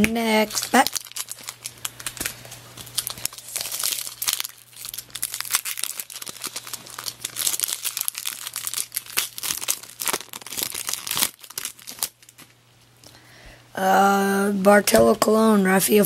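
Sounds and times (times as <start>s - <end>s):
foil wrapper crinkling and tearing: 0.0s - 12.6s.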